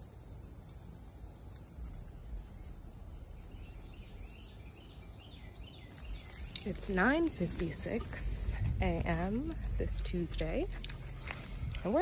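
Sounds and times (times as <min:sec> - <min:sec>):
insects droning: 0:00.0 - 0:12.0
faint bird chirps: 0:01.8 - 0:06.7
low rumble: 0:06.0 - 0:12.0.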